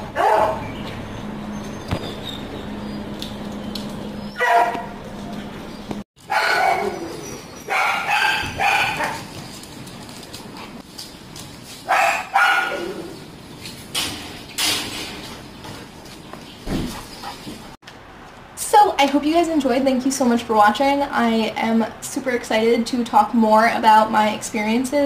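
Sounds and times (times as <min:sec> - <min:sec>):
dogs barking: 0:00.0 - 0:01.0, 0:04.2 - 0:05.6, 0:06.2 - 0:09.4, 0:11.8 - 0:13.2.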